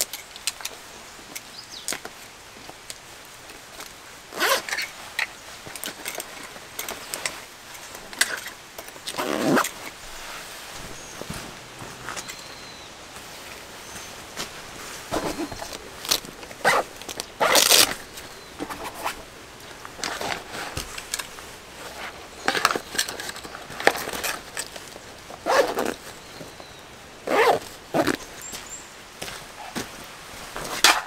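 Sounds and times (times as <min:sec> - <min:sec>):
nylon bag rustling: 0:04.3 - 0:31.0
folding chair scraping: 0:14.8 - 0:19.3, 0:20.0 - 0:26.1.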